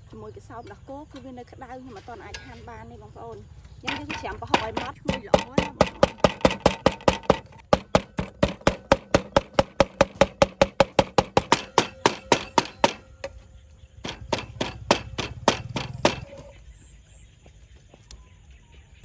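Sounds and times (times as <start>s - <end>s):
cleaver chopping on wooden board: 3.9s - 13.4s, 14.0s - 16.5s.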